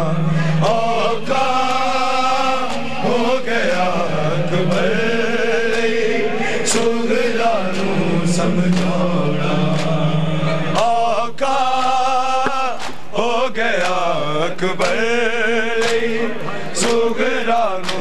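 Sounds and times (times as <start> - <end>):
men chanting mournful melody: 0.0 - 18.0.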